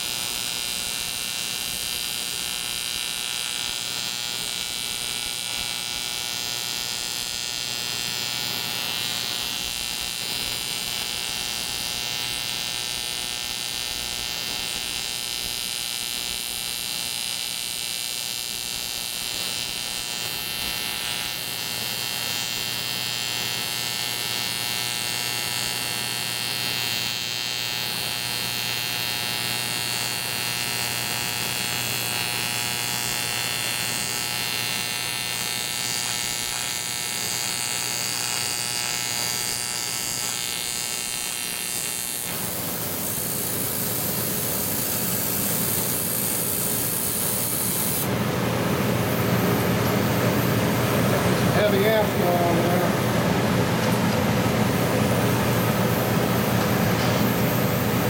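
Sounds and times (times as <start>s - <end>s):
welding arc electric buzz: 0.0s - 58.0s.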